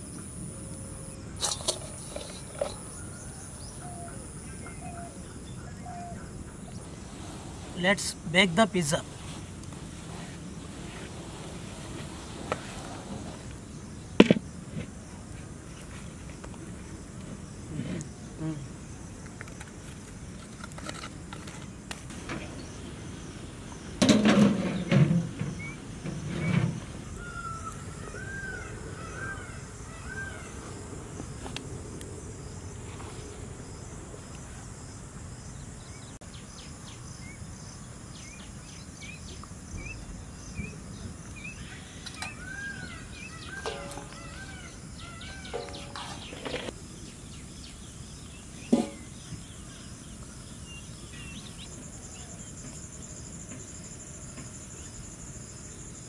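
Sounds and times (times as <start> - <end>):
high insect drone: 0.0 - 56.0
bird chirping: 35.5 - 52.6
metal lid clanking on pan: 43.6 - 44.2, 45.4 - 46.7, 48.7 - 49.1.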